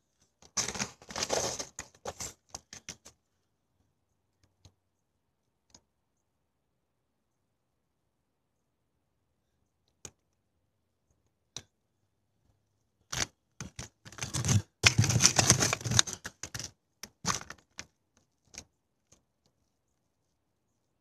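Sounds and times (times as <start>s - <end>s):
camera handling rubbing: 13.1s - 17.6s.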